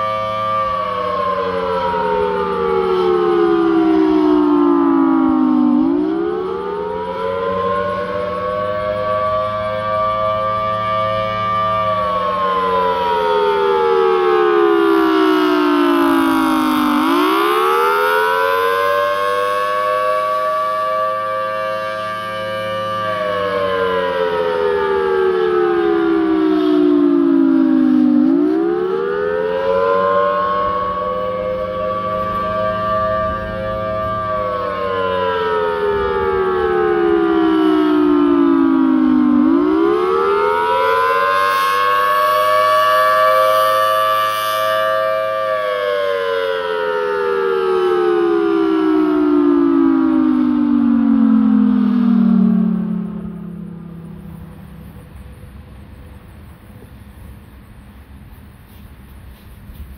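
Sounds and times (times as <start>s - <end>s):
warning siren wailing: 0.0s - 59.1s.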